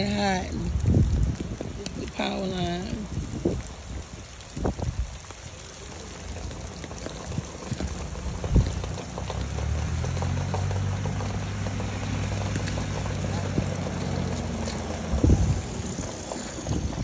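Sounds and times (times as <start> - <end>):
rustling and crackling: 0.0 - 17.0
low motor hum: 6.3 - 17.0.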